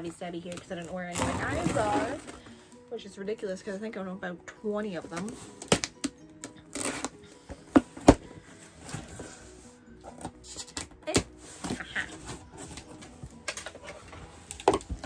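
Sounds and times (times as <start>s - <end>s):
quiet background music: 0.0s - 15.0s
tape tearing: 5.5s - 6.1s, 6.7s - 7.2s.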